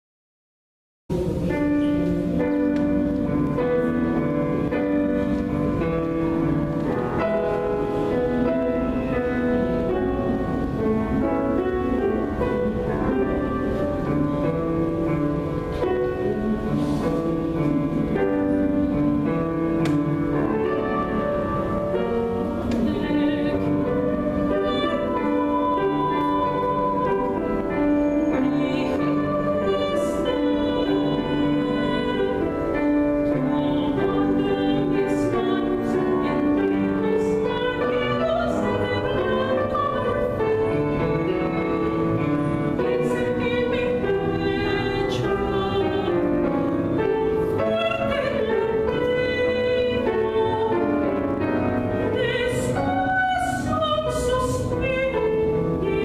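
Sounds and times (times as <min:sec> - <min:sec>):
grand piano: 0:01.1 - 0:56.0
woman singing opera: 0:20.3 - 0:56.0.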